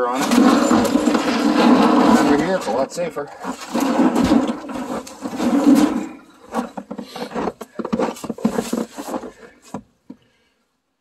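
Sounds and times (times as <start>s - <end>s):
metal grill scraping: 0.0s - 7.4s.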